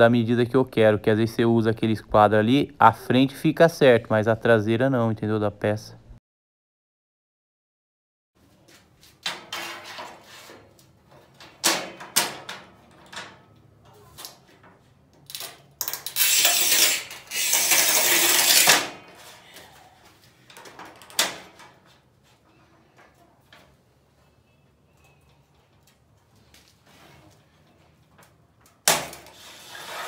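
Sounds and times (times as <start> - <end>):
scoring wheel scratching tile: 16.2 - 18.8, 29.4 - 30.0.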